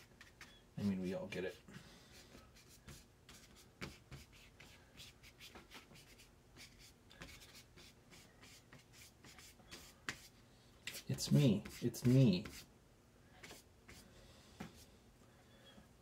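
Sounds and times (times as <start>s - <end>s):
paintbrush dabbing on paper: 1.5s - 12.7s.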